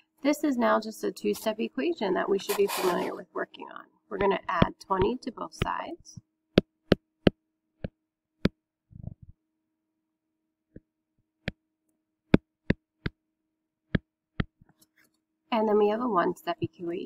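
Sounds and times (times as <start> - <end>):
soft rustle: 2.5 - 3.2.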